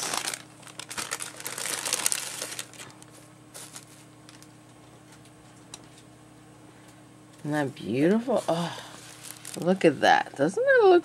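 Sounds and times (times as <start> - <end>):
craft materials rustling: 0.0 - 4.4.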